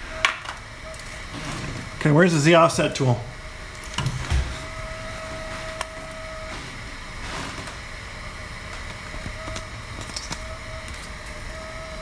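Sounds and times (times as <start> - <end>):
faint whine: 0.0 - 12.0
printer humming: 0.0 - 12.0.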